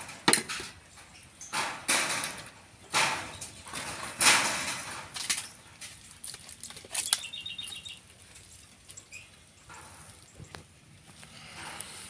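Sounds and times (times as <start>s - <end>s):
plastic bottle crinkling: 5.2s - 9.0s.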